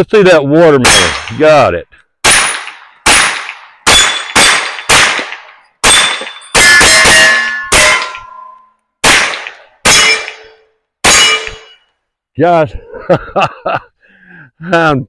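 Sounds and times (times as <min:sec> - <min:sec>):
gunshots: 0:00.8 - 0:01.6, 0:02.2 - 0:08.3, 0:09.0 - 0:11.8
steel targets ringing: 0:00.9 - 0:01.4, 0:03.9 - 0:05.0, 0:05.8 - 0:11.9.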